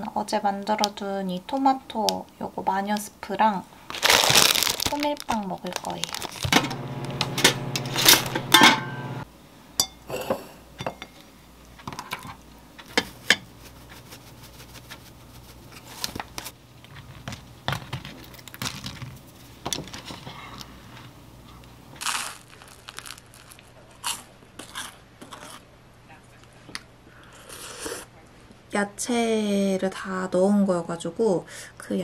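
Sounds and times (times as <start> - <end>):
kitchen appliance humming: 6.2 - 10.4.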